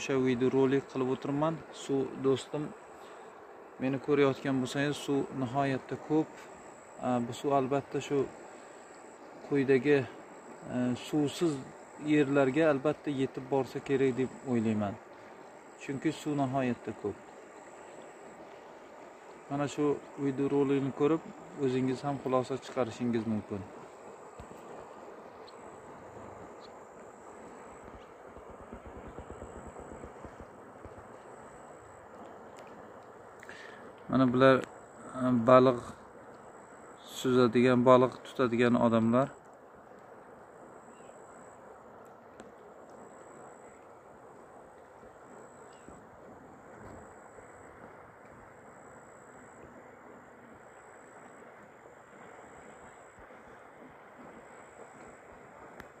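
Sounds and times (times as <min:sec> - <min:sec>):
river rushing: 0:00.0 - 0:39.1
wind: 0:00.0 - 0:56.0
wind gusts buffeting microphone: 0:22.8 - 0:31.4.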